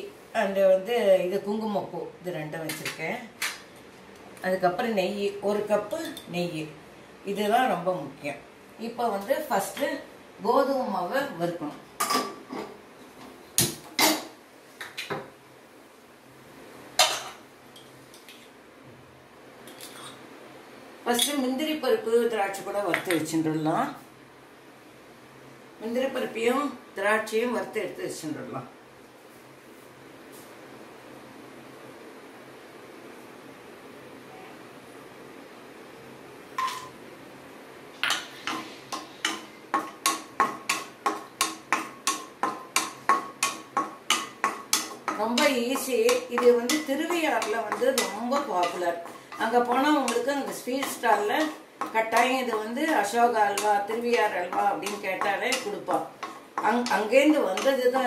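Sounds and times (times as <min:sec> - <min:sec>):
pan knocking on metal grate: 0:38.0 - 0:57.8.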